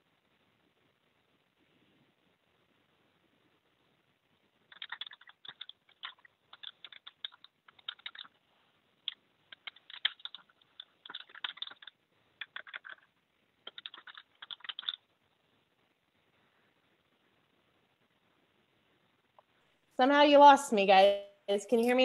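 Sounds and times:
computer keyboard typing: 0:04.7 - 0:08.4, 0:09.0 - 0:15.1.

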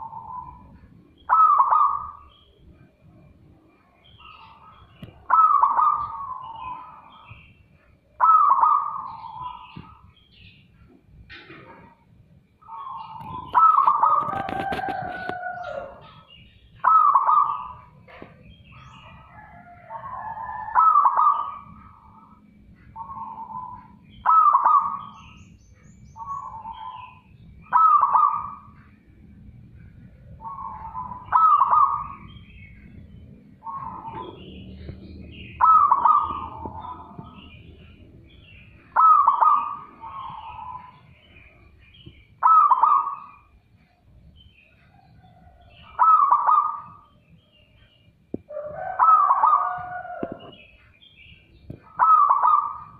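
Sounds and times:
dove cooing: 0:00.0 - 0:02.4, 0:04.5 - 0:07.4, 0:08.2 - 0:10.0, 0:12.7 - 0:18.3, 0:19.0 - 0:25.1, 0:26.2 - 0:28.8, 0:30.2 - 0:32.3, 0:33.5 - 0:41.0, 0:42.4 - 0:43.4, 0:44.9 - 0:47.1, 0:48.5 - 0:50.6, 0:51.7 - 0:52.9.

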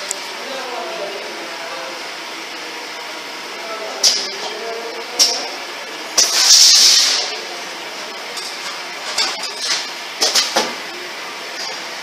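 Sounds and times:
compressed air hiss: 0:06.2 - 0:07.3.

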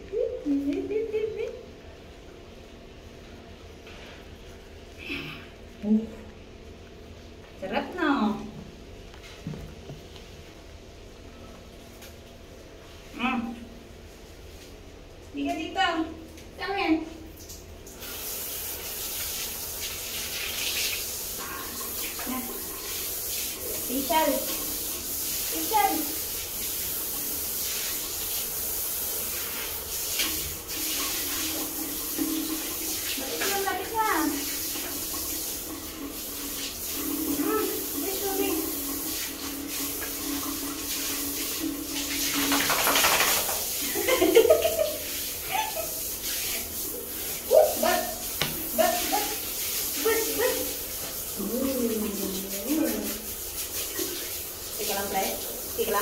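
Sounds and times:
shower head spraying water: 0:17.5 - 0:56.0.

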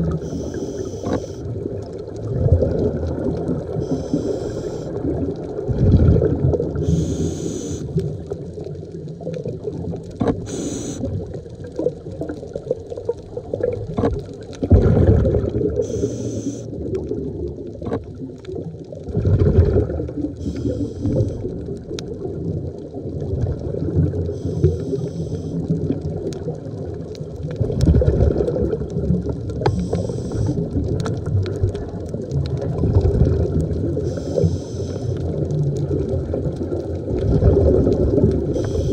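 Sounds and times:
exhaled bubbles gushing: 0:00.0 - 0:38.9
regulator inhale hiss: 0:00.1 - 0:01.5, 0:03.8 - 0:05.0, 0:06.8 - 0:08.1, 0:10.4 - 0:11.1, 0:15.8 - 0:16.8, 0:20.4 - 0:21.5, 0:24.4 - 0:25.7, 0:29.7 - 0:30.6, 0:34.0 - 0:35.2, 0:38.5 - 0:38.9.

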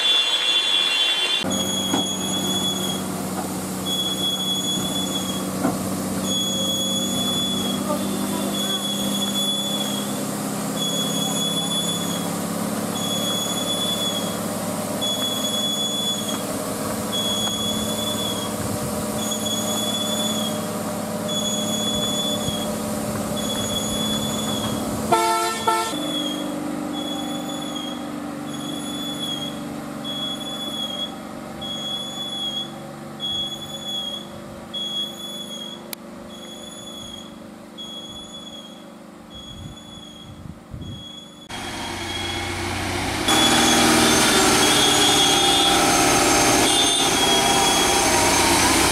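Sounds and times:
diesel lorry engine driving away: 0:01.4 - 0:40.3, 0:40.9 - 0:48.9
high-pitched chirp: 0:06.2 - 0:10.2, 0:10.8 - 0:12.3, 0:19.2 - 0:20.7, 0:26.0 - 0:38.8
horn blast: 0:24.3 - 0:26.4, 0:41.5 - 0:48.9.

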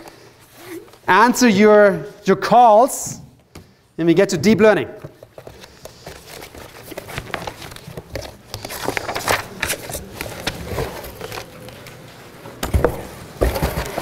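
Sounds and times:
paper rustling and shuffling: 0:05.1 - 0:14.0.

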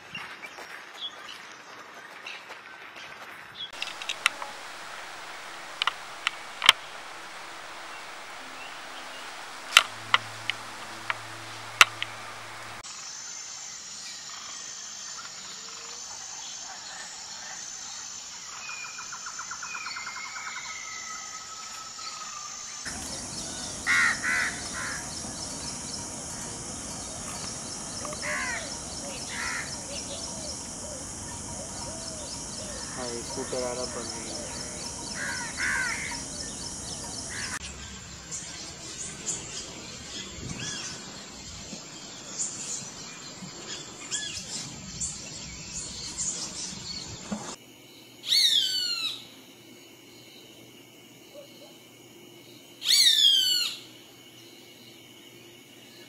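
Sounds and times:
loud bird calls: 0:03.8 - 0:12.8, 0:19.0 - 0:41.3, 0:52.8 - 0:53.8
low rushing noise: 0:03.8 - 0:12.8, 0:22.9 - 0:37.8
sharp clicks: 0:03.8 - 0:12.8
steady high tone: 0:03.8 - 0:12.8.

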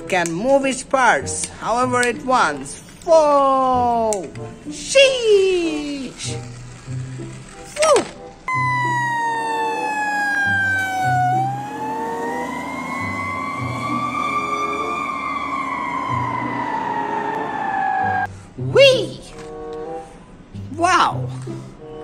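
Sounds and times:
fire truck siren wailing: 0:08.5 - 0:18.3.

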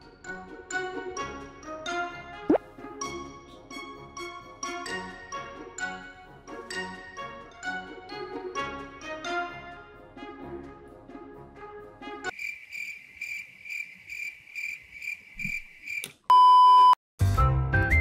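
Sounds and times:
light background music: 0:00.0 - 0:12.3
cricket chirping sound effect: 0:12.3 - 0:16.1
test-tone beep: 0:16.3 - 0:17.0.

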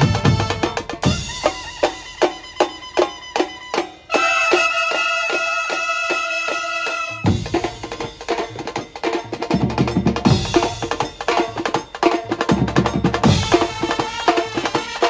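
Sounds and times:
saxophones and trumpets chord: 0:00.0 - 0:02.4, 0:04.1 - 0:07.4
fast percussion break: 0:00.0 - 0:15.0.

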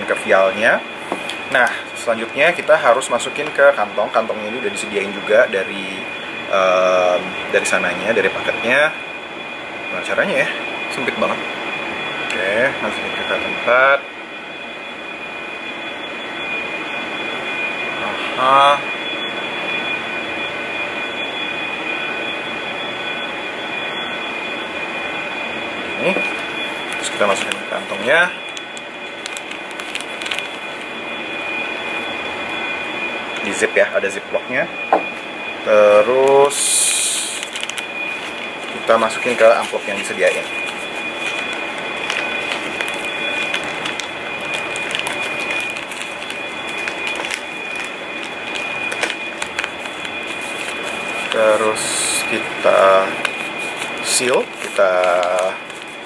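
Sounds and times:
thin high whines: 0:00.0 - 0:56.0
air conditioner whooshing hiss: 0:16.0 - 0:56.0
plastic bag and paper crinkling: 0:26.2 - 0:31.0, 0:36.1 - 0:56.0.

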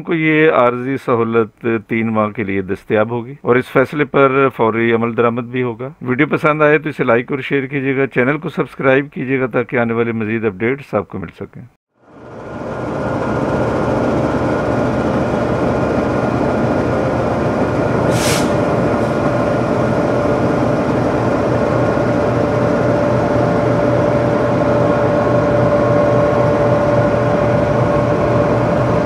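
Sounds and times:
diesel locomotive engines idling: 0:12.1 - 0:29.0
short hiss: 0:18.1 - 0:18.6.

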